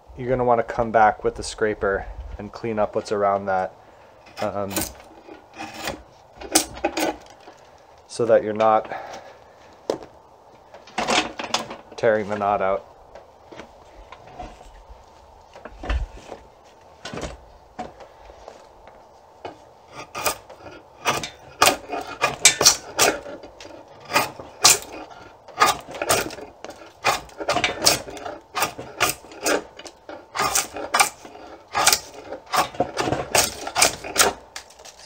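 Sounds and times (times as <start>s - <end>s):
draw knife scraping wood: 4.3s - 7.5s, 19.9s - 35.0s.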